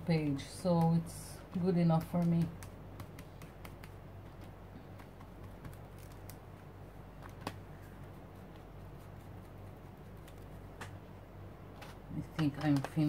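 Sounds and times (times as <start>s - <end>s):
low steady hum: 0.0s - 13.0s
ink sponge tapping on paper: 0.7s - 6.3s.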